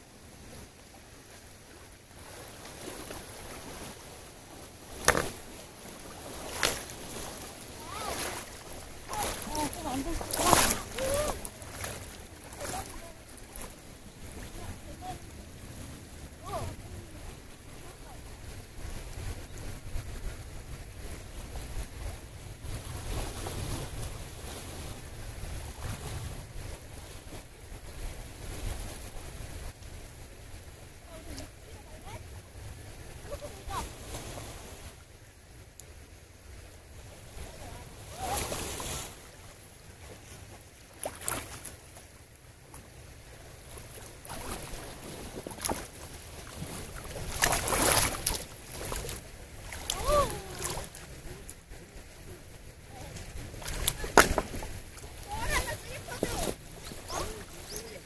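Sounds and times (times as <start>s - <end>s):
wind rumbling on microphone: 0.0s - 35.2s, 36.1s - 58.0s
stream flowing: 0.0s - 58.0s
water splashing: 0.5s - 19.2s, 36.9s - 58.0s
wind buffeting microphone: 43.2s - 58.0s.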